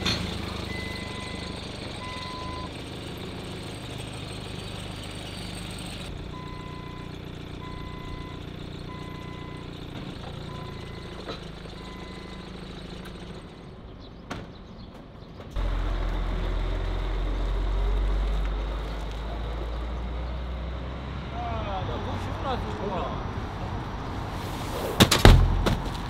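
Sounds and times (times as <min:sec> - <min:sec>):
forklift engine running: 0:00.0 - 0:14.2, 0:15.6 - 0:21.4
diesel truck engine rumble: 0:00.0 - 0:26.0
reversing alarm beeping: 0:00.6 - 0:02.7, 0:06.3 - 0:09.7, 0:10.4 - 0:12.6.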